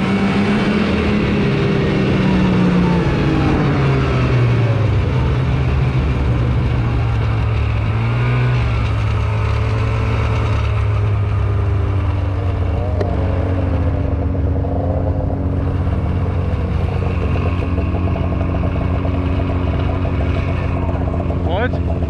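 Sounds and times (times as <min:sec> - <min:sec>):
snowmobile engine running: 0:00.0 - 0:22.0.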